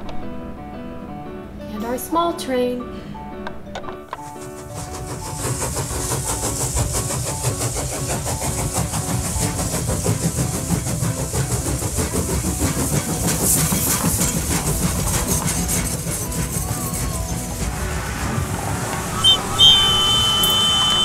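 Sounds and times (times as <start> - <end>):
steam hissing: 4.2 - 21.0
steam train chuffing: 4.2 - 21.0.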